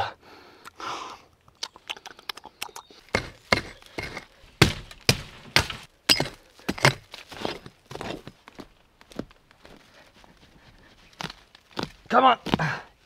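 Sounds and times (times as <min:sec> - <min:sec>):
woody knocks and cracks: 0:03.1 - 0:07.3.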